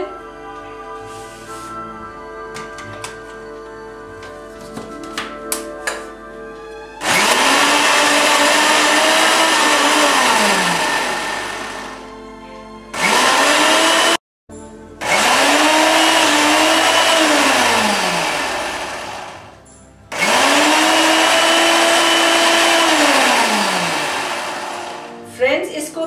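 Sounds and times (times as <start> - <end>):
mixer grinder motor whirring: 7.0 - 12.1, 12.9 - 14.2, 15.0 - 25.2.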